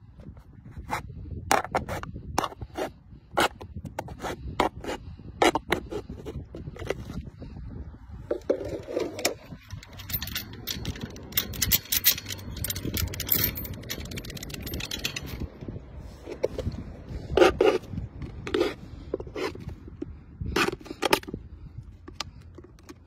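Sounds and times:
metal chain and padlock clinking: 8.4s - 15.8s.

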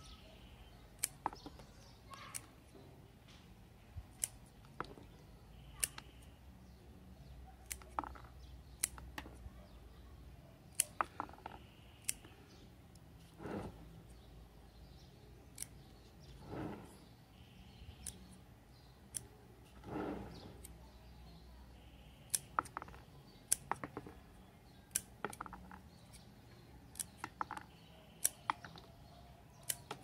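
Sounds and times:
scissors snipping leaves: 4.1s - 4.6s, 5.6s - 6.2s, 7.6s - 9.4s, 10.7s - 12.4s, 15.5s - 15.9s, 22.2s - 23.9s, 24.8s - 28.7s, 29.5s - 30.0s.

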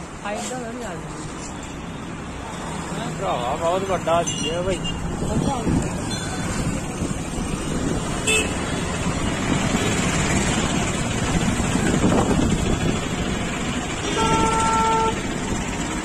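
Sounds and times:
street traffic noise: 0.0s - 16.0s
vehicle horn honking: 8.2s - 8.6s, 14.0s - 15.2s.

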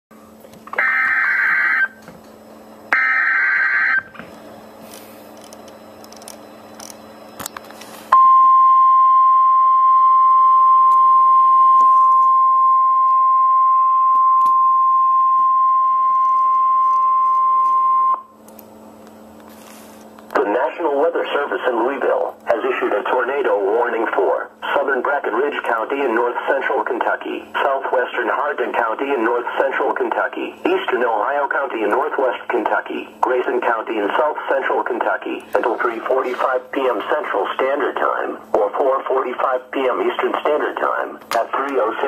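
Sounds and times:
steady alarm tone: 0.7s - 2.0s, 2.9s - 4.2s.

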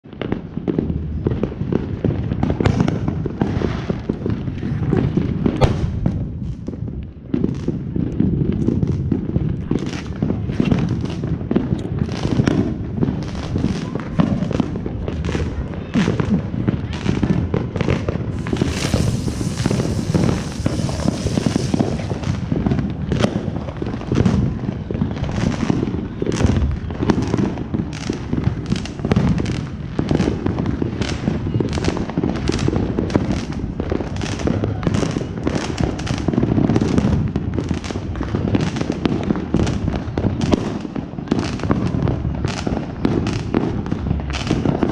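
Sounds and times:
fireworks popping and booming: 0.0s - 44.9s
ground spinner firework hissing: 18.1s - 24.2s.

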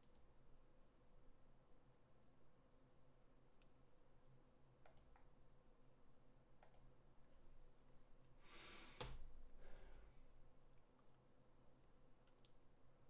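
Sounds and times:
computer mouse clicks: 0.0s - 0.3s, 4.8s - 5.3s, 6.6s - 6.9s, 12.2s - 12.6s
breath out close to microphone: 8.4s - 10.2s.

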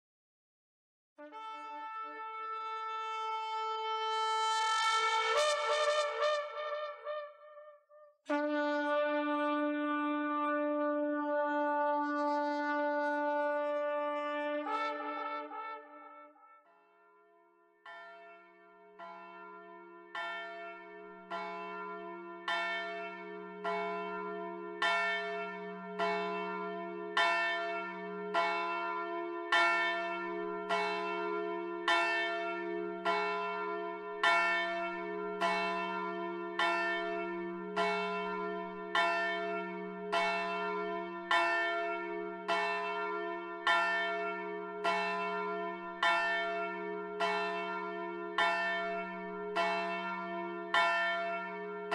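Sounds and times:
church bell tolling: 17.8s - 51.9s.

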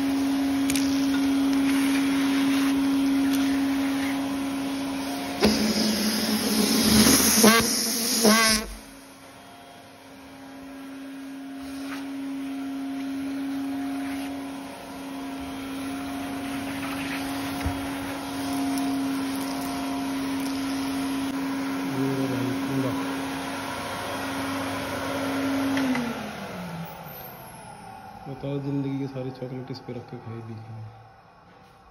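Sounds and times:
vacuum cleaner motor hum: 0.0s - 31.9s
suction rush with whistles: 1.7s - 9.0s.

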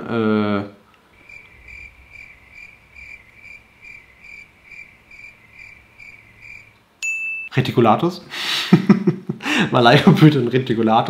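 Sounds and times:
cricket chirping: 1.1s - 6.8s.

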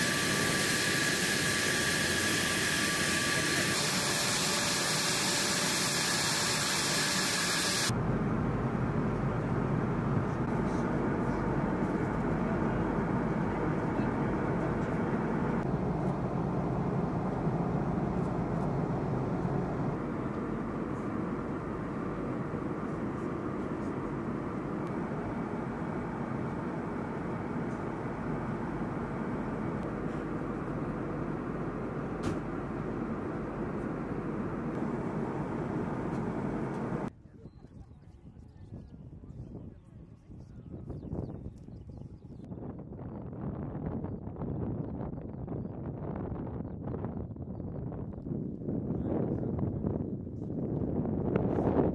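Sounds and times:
aircraft engine and rushing air: 0.0s - 37.1s.

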